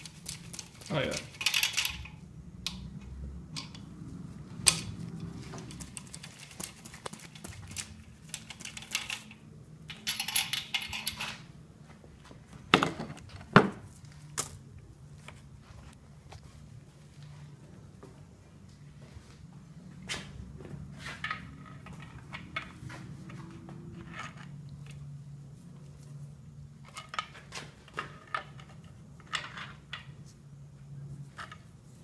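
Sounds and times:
metal tools clinking on engine: 0:08.4 - 0:11.5.

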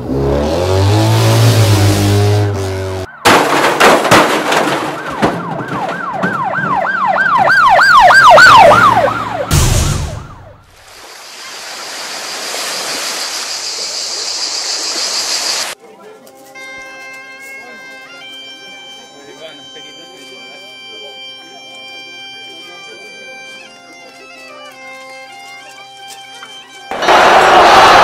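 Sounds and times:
rattle of sharp knocks: 0:03.3 - 0:06.8
cartoon siren sweeping: 0:05.8 - 0:10.7
short loud burst: 0:09.5 - 0:10.6, 0:26.9 - 0:28.0.

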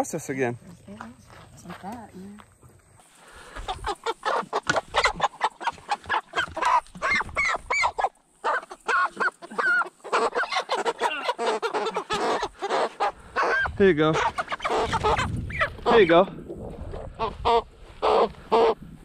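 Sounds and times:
chickens squawking in alarm: 0:03.4 - 0:16.2.

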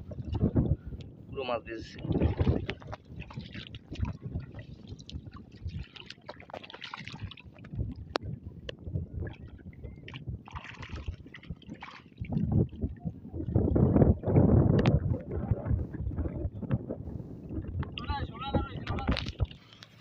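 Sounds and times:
wind rumble on microphone: 0:00.0 - 0:20.0
river water sloshing and splashing: 0:01.8 - 0:15.5, 0:18.8 - 0:20.0.

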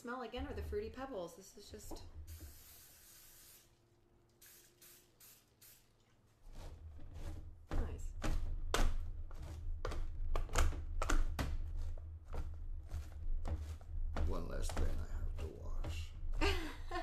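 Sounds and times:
short hiss: 0:02.3 - 0:03.7
utensil knocking and scraping: 0:06.4 - 0:17.0.

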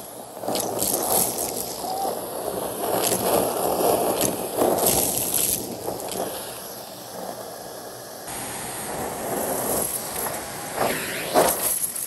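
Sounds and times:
vacuum cleaner motor: 0:08.3 - 0:12.0.

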